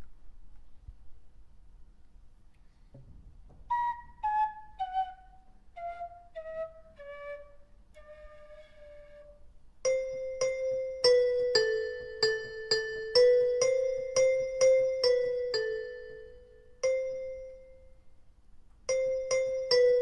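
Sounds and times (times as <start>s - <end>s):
flute-like wind instrument: 3.7s - 9.5s.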